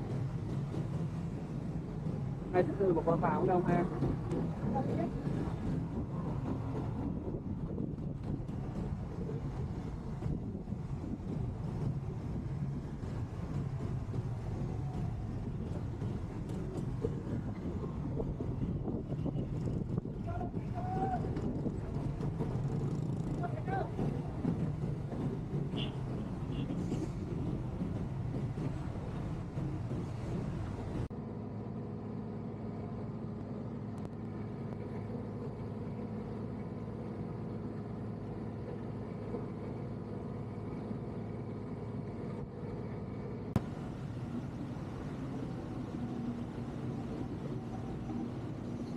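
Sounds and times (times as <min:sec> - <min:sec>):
low engine rumble: 0:00.0 - 0:48.9
wind noise on microphone: 0:03.8 - 0:31.1.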